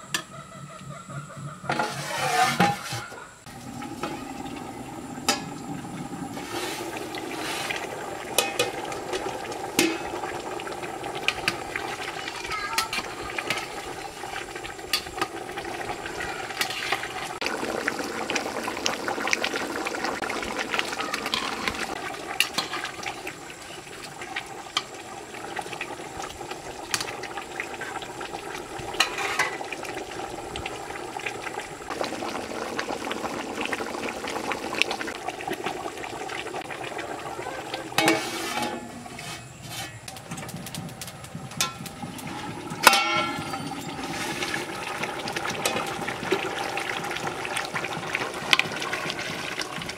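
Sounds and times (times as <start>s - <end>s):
metal lid clattering: 1.6s - 3.3s, 5.2s - 5.6s, 8.3s - 8.9s, 9.8s - 10.2s, 29.0s - 29.6s, 37.9s - 40.5s, 42.7s - 44.6s
metal spatula scraping pot: 1.6s - 3.4s, 16.5s - 17.2s, 29.0s - 29.6s, 37.9s - 40.4s, 41.6s - 44.8s
curry sloshing and bubbling: 1.8s - 49.9s.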